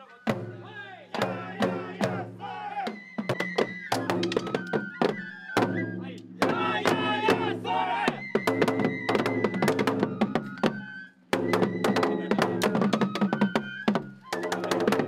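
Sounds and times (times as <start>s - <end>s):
voices chanting: 0.0s - 3.2s, 6.0s - 8.4s
high flute: 0.0s - 15.0s
drum strikes: 0.3s - 10.4s.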